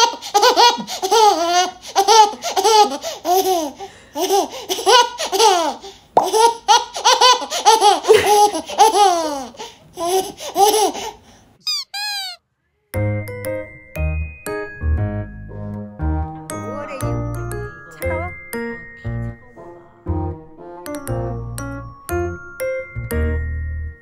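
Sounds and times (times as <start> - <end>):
baby laughing: 0.0 - 12.4.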